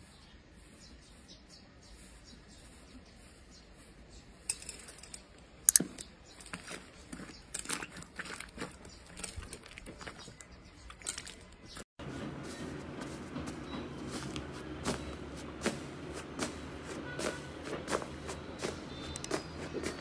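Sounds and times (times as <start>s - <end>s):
hands kneading sticky slime: 6.6s - 11.3s.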